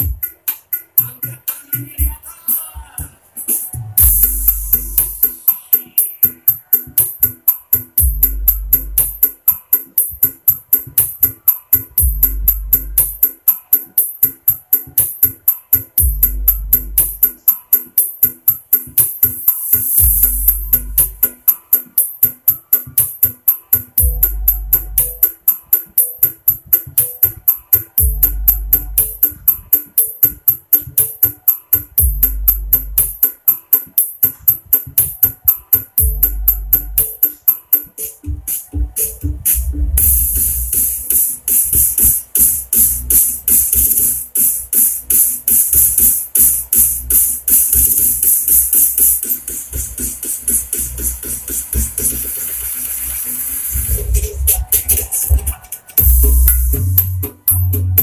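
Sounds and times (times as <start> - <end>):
electronic dance music: 0.0 - 58.0
fast drum machine beat: 0.0 - 58.0
deep bass notes: 38.3 - 40.8, 56.0 - 58.0.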